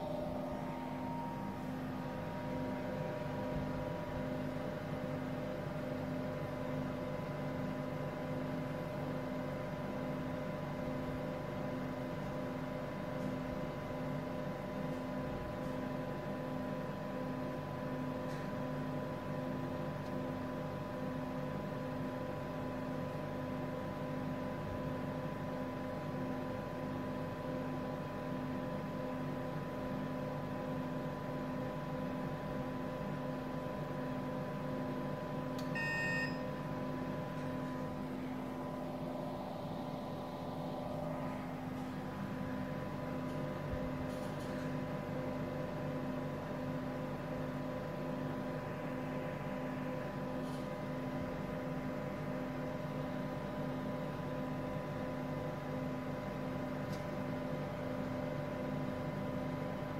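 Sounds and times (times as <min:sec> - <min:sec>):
mechanical hum with high tone: 0:00.0 - 0:59.9
short beep: 0:35.7 - 0:36.6.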